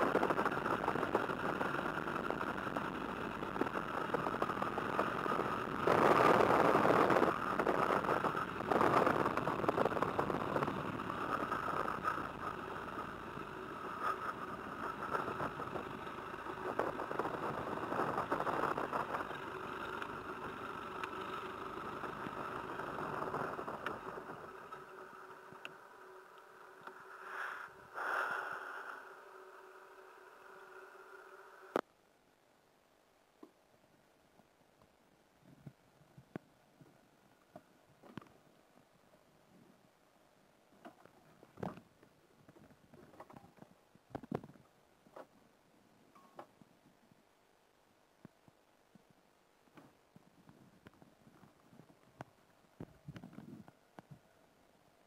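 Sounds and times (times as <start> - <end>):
propeller plane engine idling: 0.0 - 31.7.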